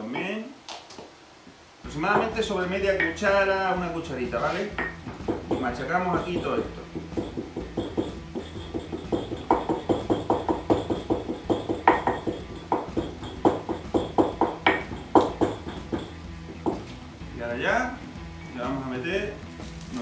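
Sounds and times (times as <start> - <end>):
pestle pounding in ceramic mortar: 1.9 - 3.3, 4.7 - 17.0.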